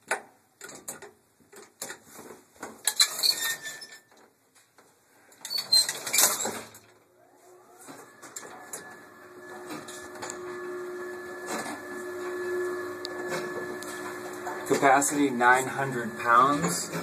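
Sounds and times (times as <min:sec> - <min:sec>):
elevator motor whine and hum: 0:07.1 - 0:17.0.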